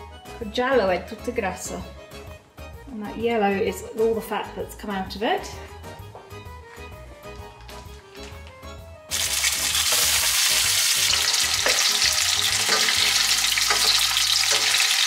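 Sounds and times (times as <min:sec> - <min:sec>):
soft background music: 0:00.0 - 0:15.0
fish frying in hot oil: 0:09.1 - 0:15.0.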